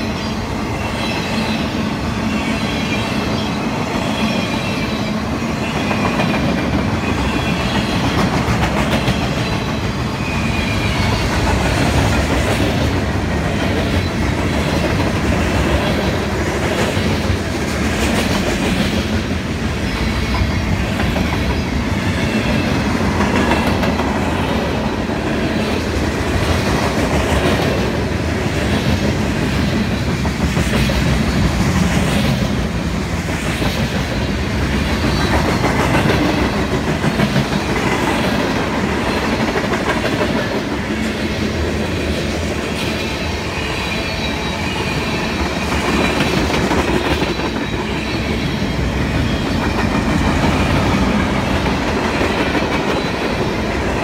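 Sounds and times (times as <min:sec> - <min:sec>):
freight train wheels rumbling: 0:00.0 - 0:54.0
clickety-clack over rail joints: 0:02.5 - 0:54.0.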